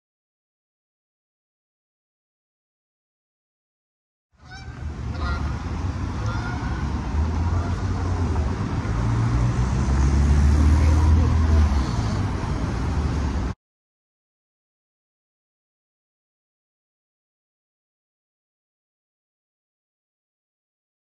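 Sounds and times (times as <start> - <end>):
heavy vehicle rumble: 4.4 - 13.6
street traffic: 4.4 - 13.6
faint voices: 10.5 - 12.7.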